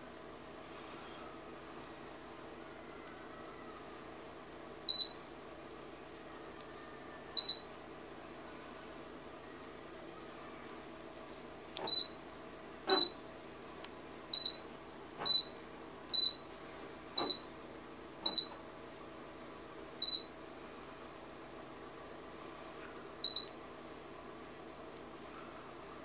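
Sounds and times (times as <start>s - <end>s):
faint steady hum: 0.0s - 26.0s
short high keypad beeps: 12.9s - 13.2s, 17.2s - 17.5s, 18.3s - 18.6s, 20.0s - 20.3s, 23.3s - 23.5s.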